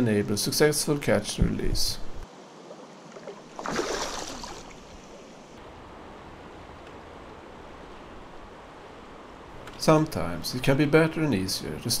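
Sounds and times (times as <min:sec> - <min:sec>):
river rippling and splashing: 0:02.2 - 0:10.1
loud water splash: 0:03.2 - 0:04.9.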